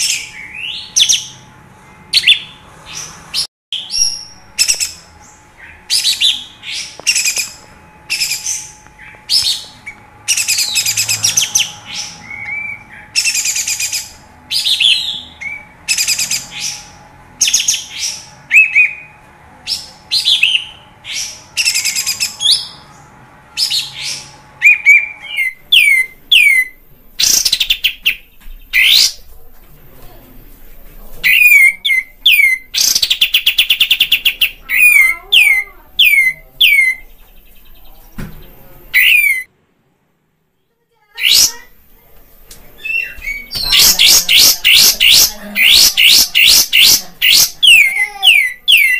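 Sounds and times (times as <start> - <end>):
bird harsh chattering: 23.6 - 29.3, 31.2 - 39.5, 41.2 - 41.9, 42.8 - 48.9.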